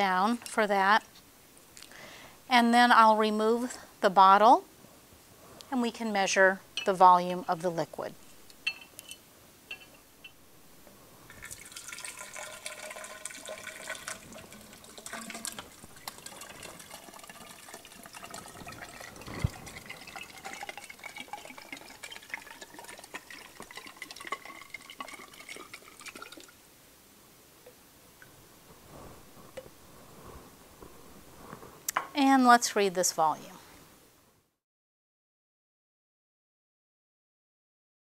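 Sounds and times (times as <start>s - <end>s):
water pouring into a cylinder: 11.3s - 26.6s.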